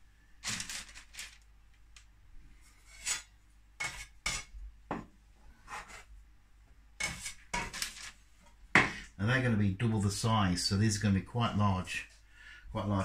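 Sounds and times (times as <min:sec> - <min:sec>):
bench scraper scraping dough: 0:02.7 - 0:04.5, 0:05.6 - 0:06.1, 0:07.0 - 0:08.1.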